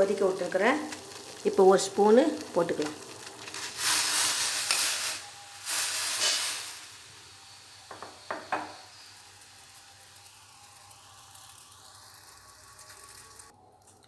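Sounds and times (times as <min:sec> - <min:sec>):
boiling water hissing and fizzing: 0:00.0 - 0:13.6.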